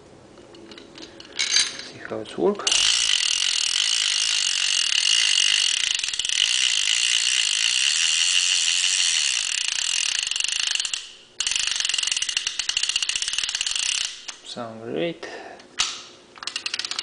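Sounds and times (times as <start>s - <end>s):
fishing reel ratchet clicking: 2.7s - 14.4s, 16.4s - 17.0s.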